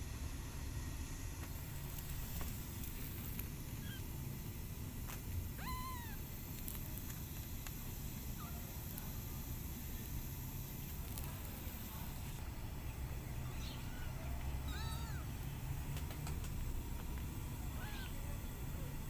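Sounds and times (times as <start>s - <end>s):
low background rumble: 0.1s - 19.0s
kitten mewing: 3.8s - 4.1s, 5.6s - 6.9s, 13.5s - 15.3s, 17.8s - 18.2s.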